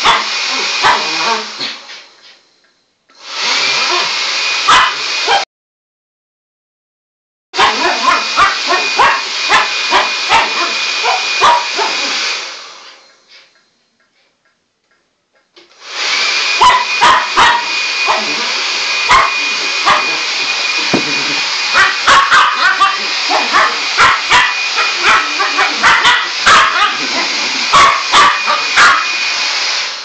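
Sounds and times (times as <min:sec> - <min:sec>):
dog barking: 0:00.0 - 0:01.4, 0:04.6 - 0:05.4, 0:07.6 - 0:12.1, 0:16.6 - 0:20.3, 0:20.9 - 0:29.2
hair dryer blowing with whine: 0:00.0 - 0:02.4, 0:03.1 - 0:05.4, 0:07.6 - 0:13.5, 0:15.6 - 0:30.0.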